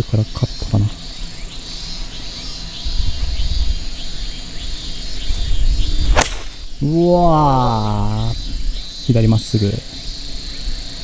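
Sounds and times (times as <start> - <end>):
insects chirping: 0.0 - 11.0
golf club striking ball: 6.1 - 6.8.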